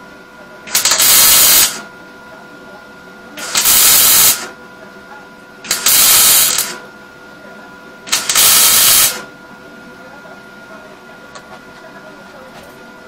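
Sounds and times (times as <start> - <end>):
welding arc bursts: 0.7 - 1.8, 3.4 - 4.5, 5.7 - 6.8, 8.1 - 9.3.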